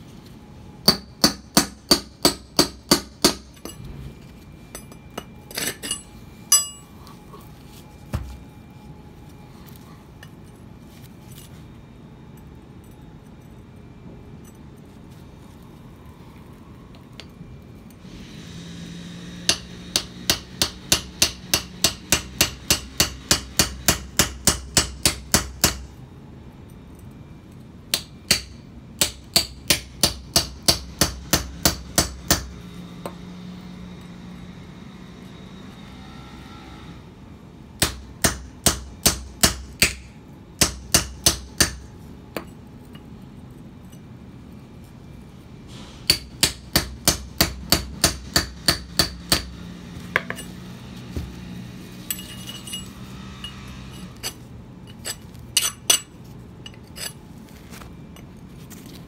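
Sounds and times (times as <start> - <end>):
hammer striking chisel on stone: 0.8 - 3.8, 19.5 - 25.9, 46.1 - 49.5, 50.1 - 50.5, 55.0 - 56.1.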